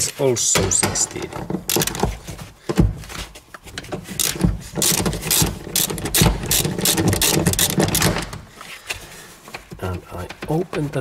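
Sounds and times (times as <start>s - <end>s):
ratchet wrench clicking: 1.7s - 2.1s, 4.2s - 8.4s.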